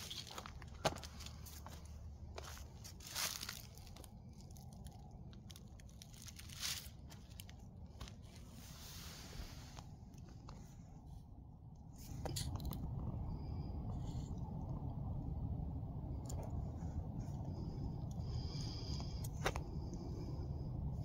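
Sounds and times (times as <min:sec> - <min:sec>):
footsteps crunching dry leaves: 0:00.0 - 0:08.6
steady low rumble: 0:00.0 - 0:21.0.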